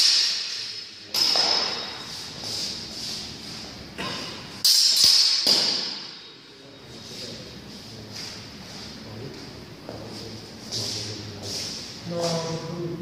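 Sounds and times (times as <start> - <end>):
swords clashing with metallic clangs: 0.0 - 2.4, 4.0 - 6.4.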